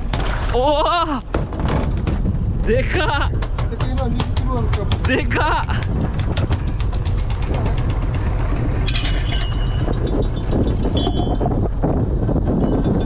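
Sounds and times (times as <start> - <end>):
boat engine running: 0.0 - 13.0
fish tapping on deck: 3.2 - 8.1.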